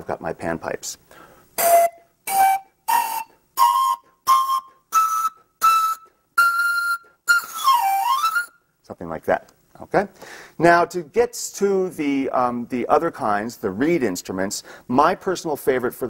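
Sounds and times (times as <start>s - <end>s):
breathy panpipe notes: 1.1s - 8.7s.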